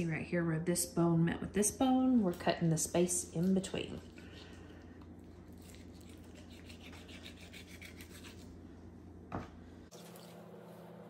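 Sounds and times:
knife sawing through chicken joint: 5.6 - 8.5.

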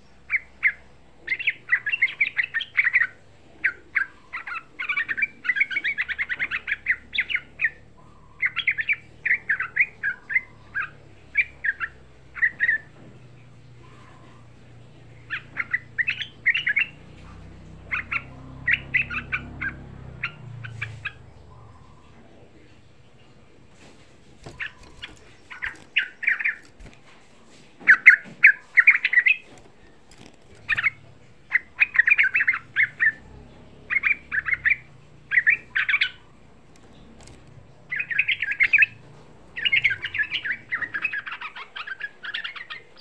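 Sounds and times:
bird singing bubbly notes: 30.5 - 43.0.

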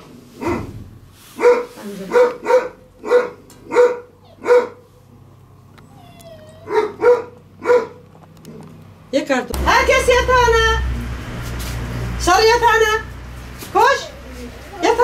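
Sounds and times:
small dog barking: 1.4 - 4.8, 6.6 - 8.0.

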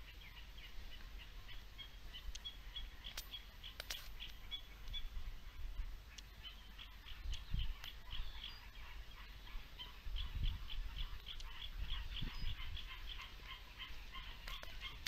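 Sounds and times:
animal chirping: 6.1 - 15.0.

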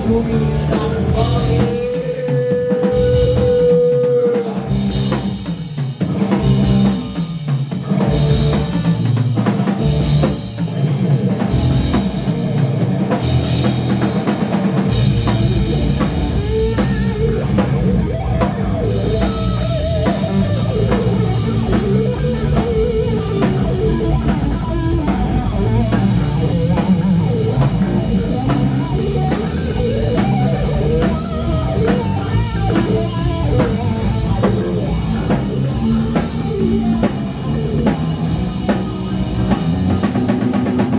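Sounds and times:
rock band playing: 0.0 - 40.9.

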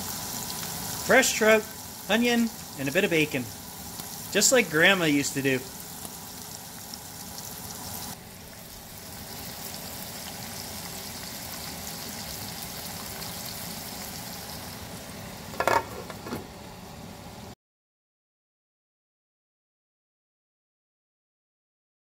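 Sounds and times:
fish sizzling in a pan: 0.0 - 16.2.

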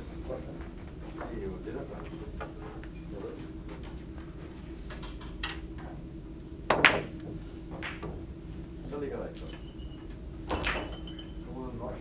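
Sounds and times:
billiard balls clacking: 6.7 - 8.3, 10.5 - 11.4.

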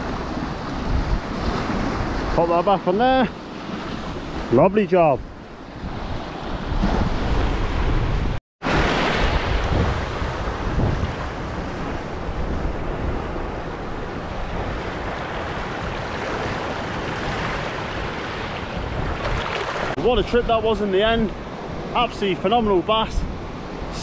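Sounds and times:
wind rumbling on microphone: 0.0 - 2.4, 5.2 - 21.9
sea waves washing over rocks: 5.8 - 20.0.

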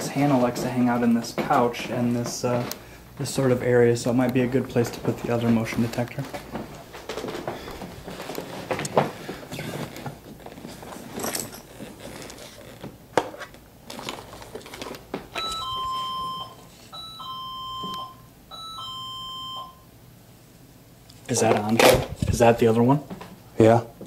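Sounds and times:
handling knocks and rustling: 4.8 - 16.4.

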